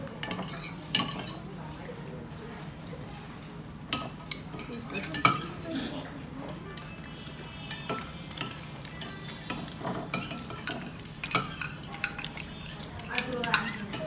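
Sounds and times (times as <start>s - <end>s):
cutlery and dishes clinking: 0.1s - 1.4s, 3.9s - 5.9s, 6.8s - 14.0s.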